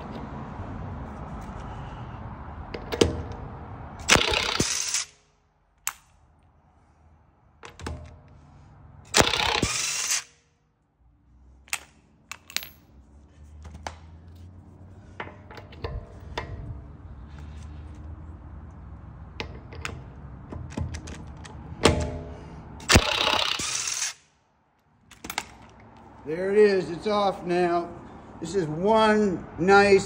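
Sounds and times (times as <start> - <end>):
impact wrench hammering: 4.0 - 5.2, 9.1 - 10.4, 21.8 - 24.2
metallic clinks and knocks: 11.7 - 13.0.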